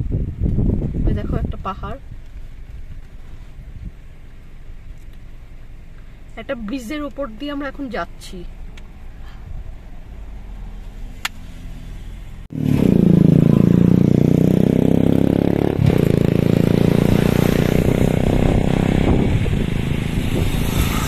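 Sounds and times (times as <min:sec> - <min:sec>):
motorcycle engine running: 0:12.5 - 0:21.0
steady rushing noise: 0:15.6 - 0:21.0.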